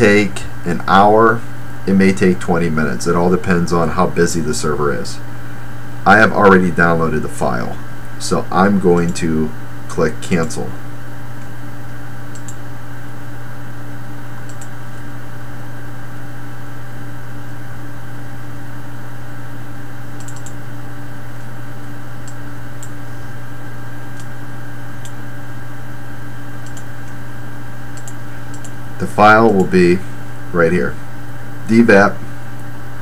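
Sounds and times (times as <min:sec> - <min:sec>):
low electrical hum: 0:00.0 - 0:33.0
computer mouse clicks: 0:12.3 - 0:12.6, 0:14.4 - 0:14.7, 0:20.2 - 0:20.6, 0:26.6 - 0:27.2, 0:28.0 - 0:28.8.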